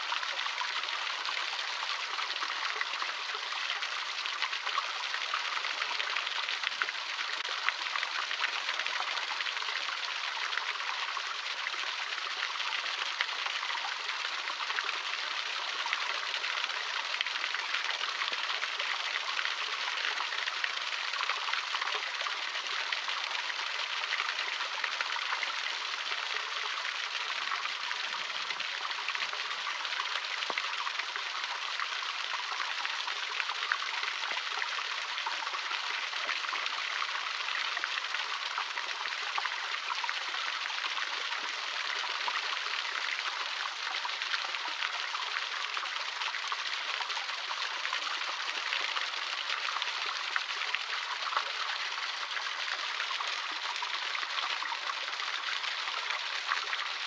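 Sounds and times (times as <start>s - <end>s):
small waterfall splashing into pool: 0.0s - 57.0s.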